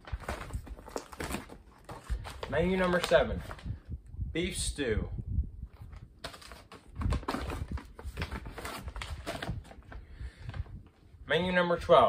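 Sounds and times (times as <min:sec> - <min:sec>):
plastic ration bags crinkling: 0:00.0 - 0:03.7, 0:05.8 - 0:10.7.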